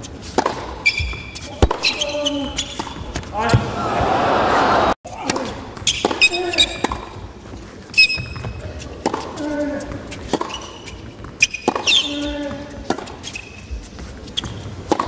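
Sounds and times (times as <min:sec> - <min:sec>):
shoes squeaking on court: 0:00.0 - 0:03.8, 0:05.3 - 0:15.0
racket striking tennis ball: 0:00.2 - 0:03.8, 0:05.1 - 0:07.2, 0:07.9 - 0:13.6, 0:14.4 - 0:15.0
tennis ball bouncing: 0:00.2 - 0:03.8, 0:05.2 - 0:15.0.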